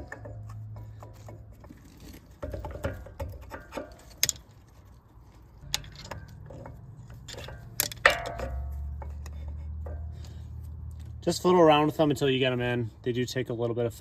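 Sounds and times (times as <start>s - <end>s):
metal brake pad clinking: 5.6s - 10.4s.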